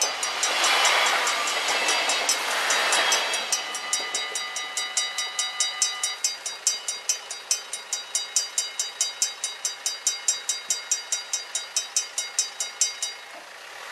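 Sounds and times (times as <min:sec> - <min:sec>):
crossing warning bells ringing: 0:00.0 - 0:13.5.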